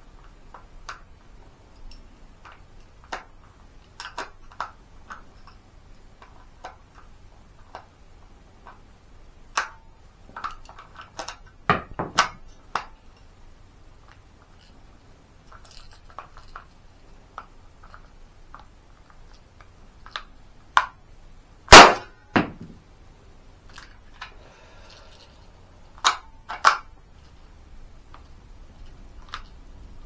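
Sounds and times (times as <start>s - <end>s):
cartridges clicking into toy gun: 1.8s - 5.6s, 9.5s - 13.0s, 25.9s - 26.9s.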